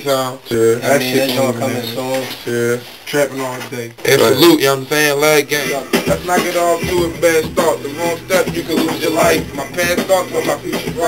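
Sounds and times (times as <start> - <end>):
man rapping: 0.0 - 11.0
hip hop beat: 4.1 - 11.0.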